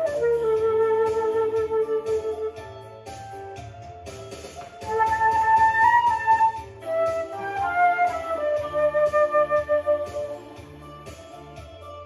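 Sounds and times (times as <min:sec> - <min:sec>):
flute melody: 0:00.0 - 0:03.4, 0:04.8 - 0:11.0
accompaniment track with bass line: 0:00.0 - 0:12.0.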